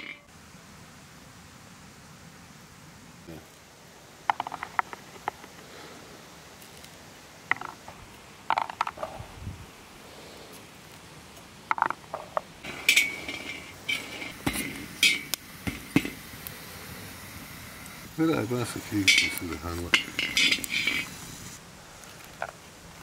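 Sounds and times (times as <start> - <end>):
chestnuts clattering on metal sheet: 4.3 - 5.6, 11.7 - 16.2, 18.6 - 21.2.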